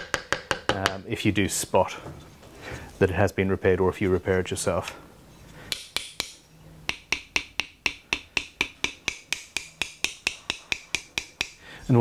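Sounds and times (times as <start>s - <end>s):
metal tool tapping on wood: 0.0s - 1.0s, 5.7s - 11.6s.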